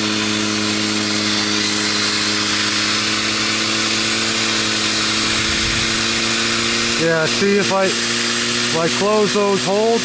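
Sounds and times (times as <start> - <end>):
turbine humming: 0.0 - 10.0
air hissing: 1.3 - 8.9.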